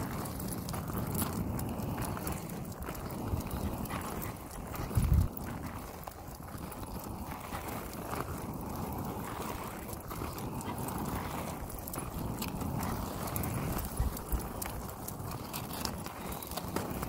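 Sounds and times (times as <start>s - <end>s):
low rumble from carried phone: 0.0s - 9.4s
footsteps on pavement: 0.0s - 17.0s.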